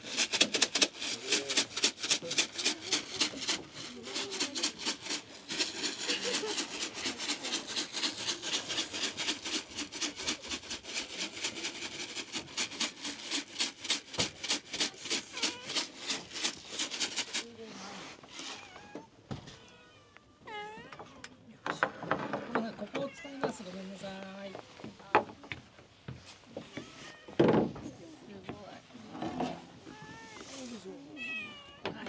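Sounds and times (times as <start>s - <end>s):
dry cat food rattling in container: 0.0s - 18.5s.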